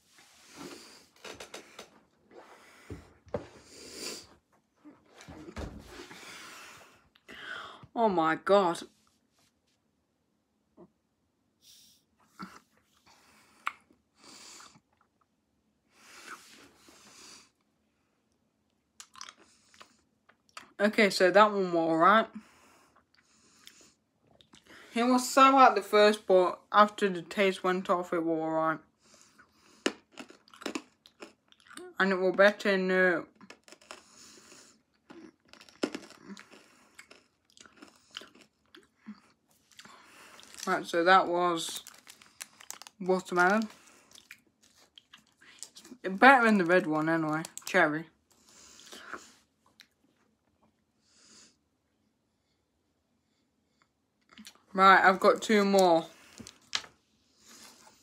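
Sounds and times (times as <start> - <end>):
candy crunching in mouth: 19.0 - 20.7, 29.8 - 31.9, 33.4 - 40.9, 41.5 - 46.0, 46.6 - 47.8.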